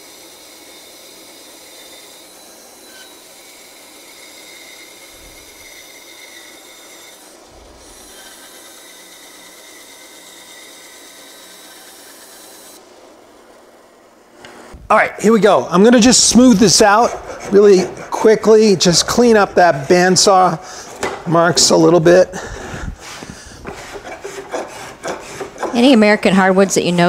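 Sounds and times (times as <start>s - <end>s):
bandsaw cutting wood: 0.0s - 13.0s, 15.4s - 27.0s
saw motor whine: 0.0s - 13.2s.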